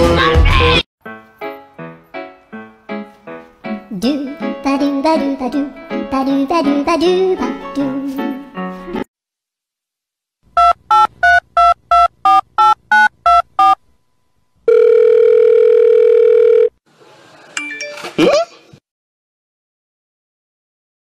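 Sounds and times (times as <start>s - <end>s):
telephone keypad tones: 14.7s - 16.7s
telephone ringing tone: 14.7s - 16.8s.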